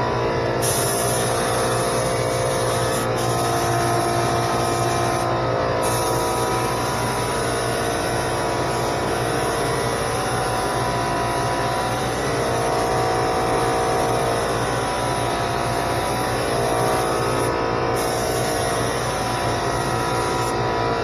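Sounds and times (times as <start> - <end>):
air compressor running: 0.0 - 21.0.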